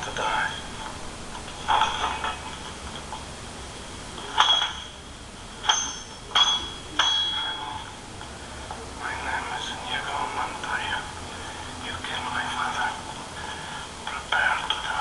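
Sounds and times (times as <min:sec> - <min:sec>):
sword blades clashing: 0:05.6 - 0:07.8.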